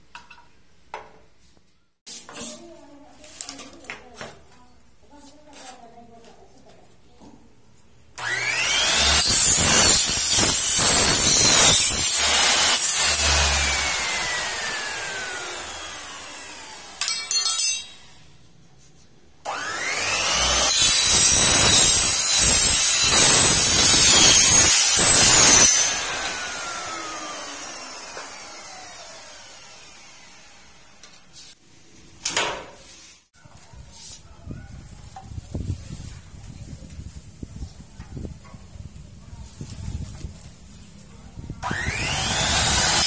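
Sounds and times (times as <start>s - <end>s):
mitre saw cutting aluminium: 8.2s - 18.2s, 19.5s - 31.4s, 41.6s - 43.0s.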